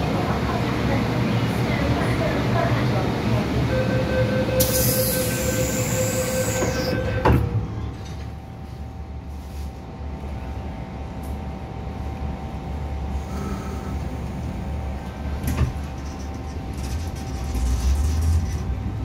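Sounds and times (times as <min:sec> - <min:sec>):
standing train hum: 0:00.0 - 0:19.0
electric train whine: 0:03.3 - 0:09.4
brake squeal: 0:04.6 - 0:07.3.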